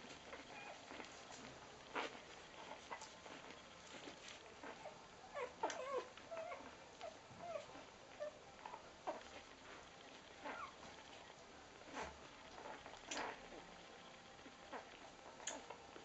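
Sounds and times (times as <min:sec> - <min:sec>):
puppies squeaking and whimpering: 0:00.3 - 0:01.1, 0:01.9 - 0:09.8, 0:10.4 - 0:10.9.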